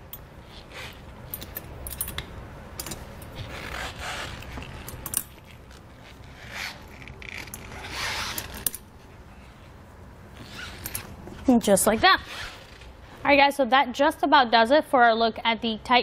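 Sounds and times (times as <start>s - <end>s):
metal tire chain clinking: 0.0s - 3.8s, 4.4s - 5.7s
metal scraping and rubbing: 2.8s - 8.8s.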